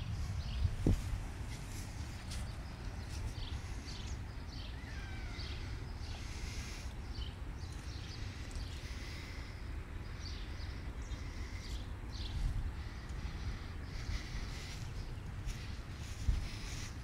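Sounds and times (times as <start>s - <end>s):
low microphone rumble: 0.0s - 17.0s
person breathing heavily: 5.4s - 17.0s.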